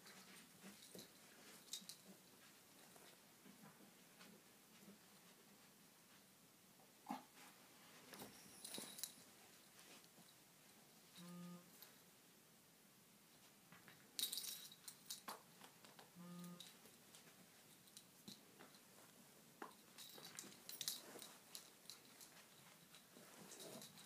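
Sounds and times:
dogs scuffling and mouthing: 7.3 - 10.3, 13.8 - 24.0
rustling and clicking: 8.0 - 10.4, 13.4 - 24.0.

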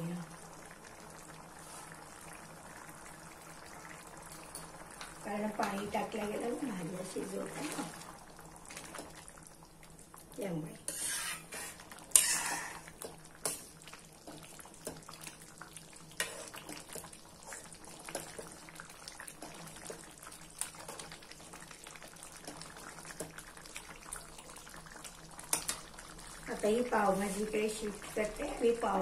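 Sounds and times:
spatula scraping steel pan: 10.9 - 12.9.

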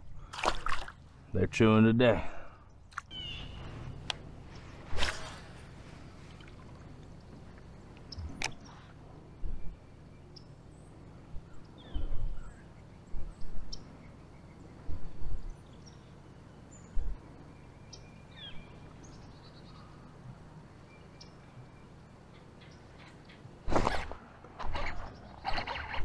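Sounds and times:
outdoor background noise: 0.0 - 26.0
birds chirping: 0.7 - 26.0
dull low thumps: 16.9 - 17.2.

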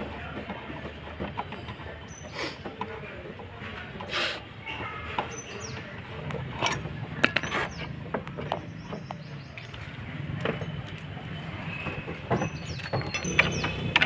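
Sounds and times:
metallic tool clicks and knocks: 12.7 - 14.0.

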